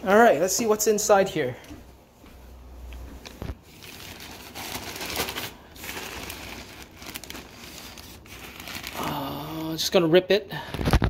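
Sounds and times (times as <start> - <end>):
plastic bag crinkling: 3.4 - 9.6.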